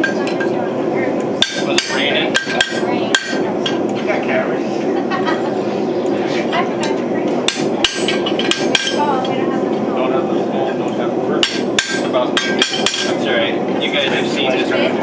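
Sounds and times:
hammer striking metal punch: 1.4 - 3.4, 7.5 - 9.0, 11.4 - 13.1.

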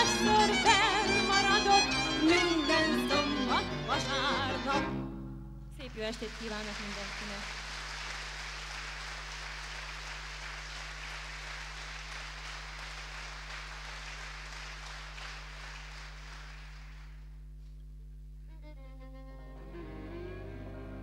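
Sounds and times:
strings playing: 0.0 - 5.4, 19.4 - 21.0
low electrical hum: 0.0 - 21.0
audience applauding: 6.1 - 17.3.

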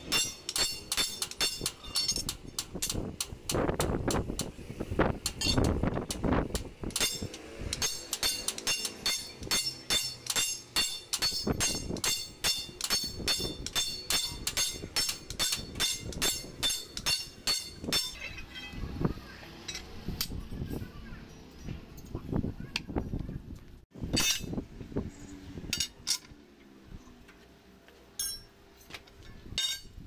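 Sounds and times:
sledgehammers ringing on metal: 0.1 - 2.2, 7.0 - 18.2, 28.2 - 28.5, 29.6 - 30.0.

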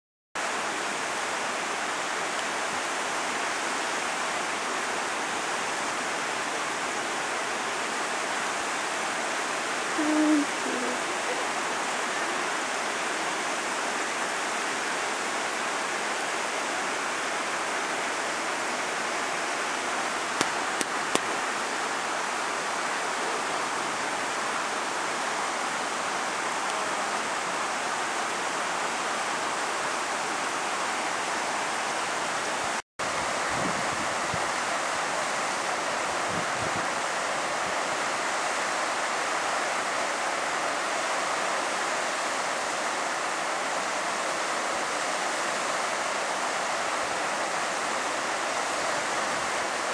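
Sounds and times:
stream rushing over rocks: 0.4 - 49.9
low hoot-like sound: 10.0 - 11.5.

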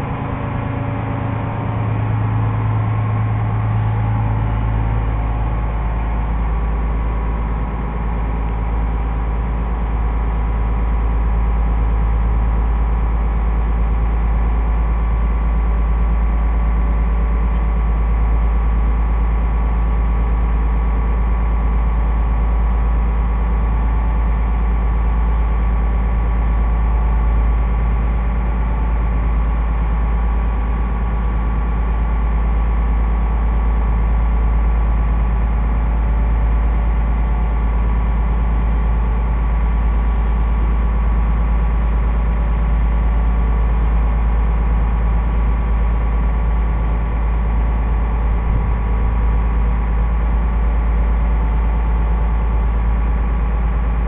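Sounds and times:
higher engine note: 0.0 - 7.3, 47.0 - 50.8
ferry engine droning: 0.0 - 18.6, 30.9 - 54.0.

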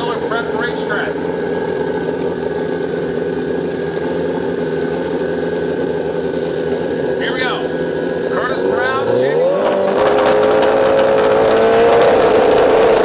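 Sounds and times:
motorcycle engine idling: 0.0 - 9.7.

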